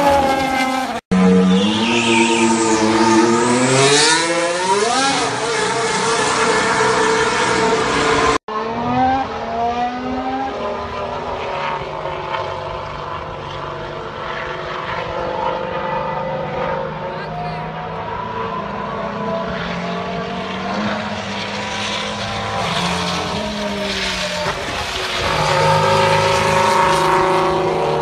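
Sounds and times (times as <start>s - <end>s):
distant racing car engine: 0.0s - 28.0s
racing car engine accelerating: 0.0s - 28.0s.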